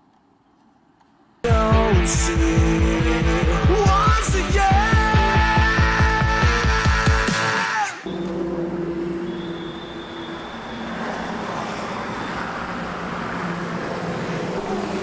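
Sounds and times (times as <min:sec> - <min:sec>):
rock music: 0:01.5 - 0:09.0
highway traffic passing: 0:08.0 - 0:15.0
engine hum: 0:08.1 - 0:15.0.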